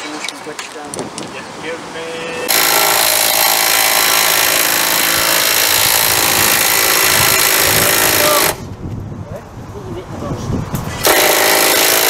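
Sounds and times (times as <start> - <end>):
power tool running: 2.5 - 8.6, 11.0 - 12.0.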